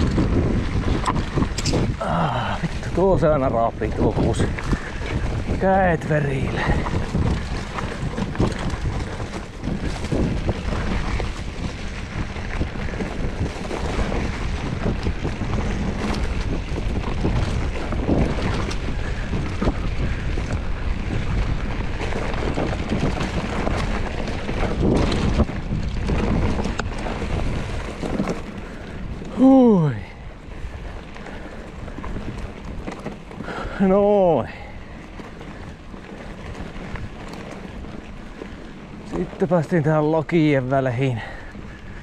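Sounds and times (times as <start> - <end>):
bike knocks and rattles: 0.0 - 30.1, 30.7 - 42.0
mountain bike tyres on dirt: 0.0 - 42.0
wind buffeting microphone: 0.0 - 42.0.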